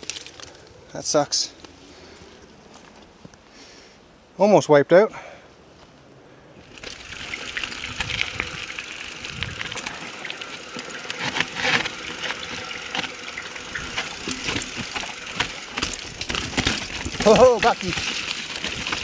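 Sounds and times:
bike rattling and knocking: 0:06.6 - 0:19.0
tyres rolling on dirt: 0:06.6 - 0:19.0.

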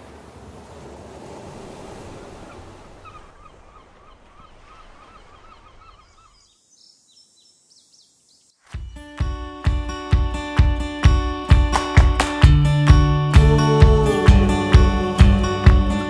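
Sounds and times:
ocean surf rushing on beach: 0:00.0 - 0:05.8, 0:11.4 - 0:16.0.

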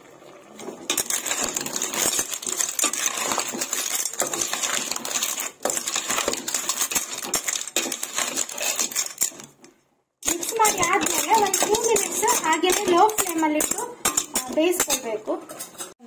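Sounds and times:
spoon stirring clams in pot: 0:00.6 - 0:16.0.

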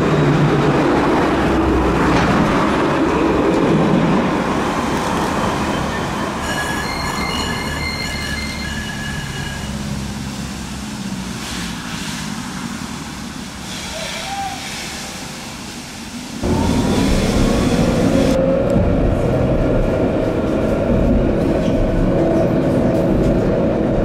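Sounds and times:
tram rumbling past: 0:00.0 - 0:14.4, 0:15.1 - 0:24.0
wheels squealing on rails: 0:05.0 - 0:10.4, 0:13.6 - 0:15.5.

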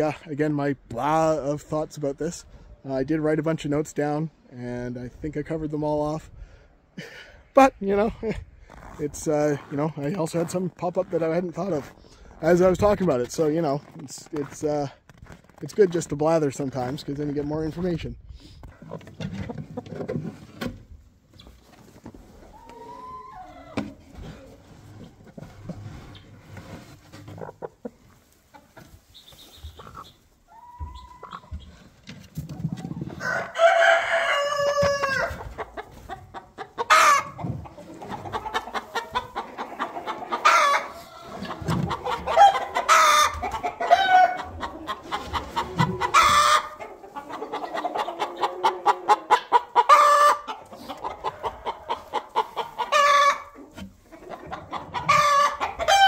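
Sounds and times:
chickens clucking: 0:15.4 - 0:56.0
chicken squawks: 0:29.1 - 0:31.7, 0:33.6 - 0:37.4, 0:38.0 - 0:53.6, 0:54.2 - 0:56.0.

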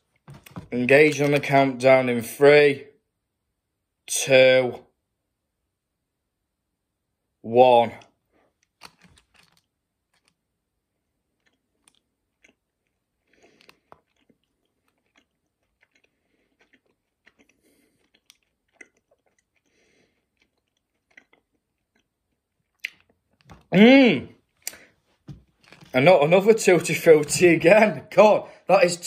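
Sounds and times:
person chewing with wet clicks: 0:08.0 - 0:10.4, 0:11.3 - 0:23.5.

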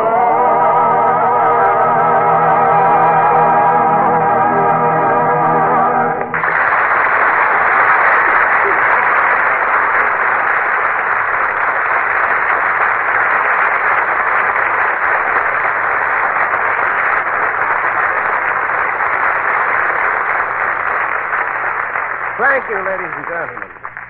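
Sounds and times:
audience applauding: 0:06.1 - 0:24.0.

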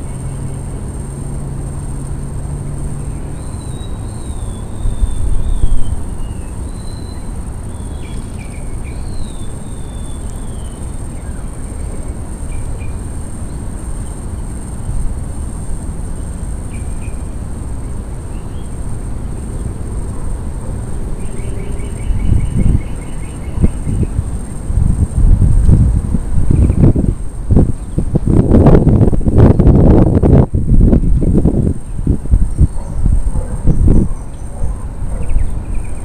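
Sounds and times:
high-pitched insect drone: 0:00.0 - 0:36.0
wind rumble on microphone: 0:00.0 - 0:36.0
small birds chirping: 0:02.9 - 0:15.1, 0:15.7 - 0:25.0, 0:25.6 - 0:28.5, 0:29.4 - 0:36.0.

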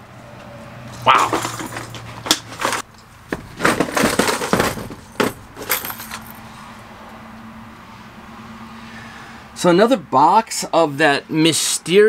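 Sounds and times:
lures clattering inside box: 0:01.2 - 0:06.3
plastic boxes knocking: 0:02.4 - 0:05.4.

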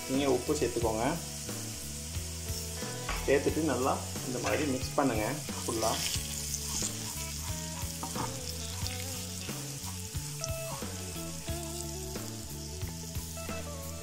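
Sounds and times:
potatoes sizzling in oil: 0:00.0 - 0:14.0
spatula scraping a pan: 0:04.2 - 0:12.8.

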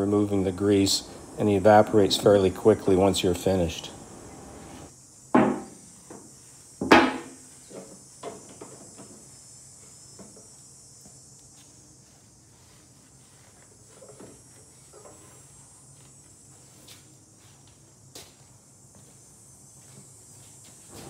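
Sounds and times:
sharp knocks: 0:05.4 - 0:05.8, 0:06.8 - 0:07.4.

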